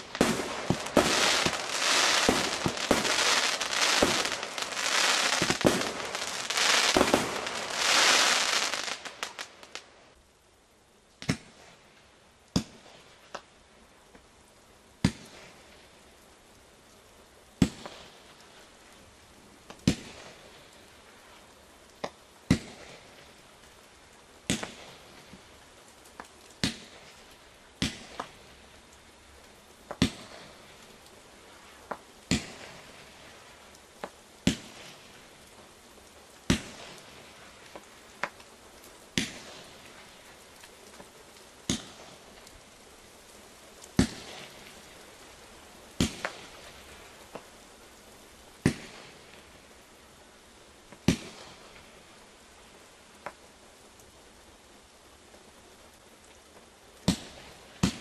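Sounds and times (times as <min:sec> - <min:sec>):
fireworks bangs: 0:00.0 - 0:09.9
faint crackling hiss: 0:00.0 - 0:58.0.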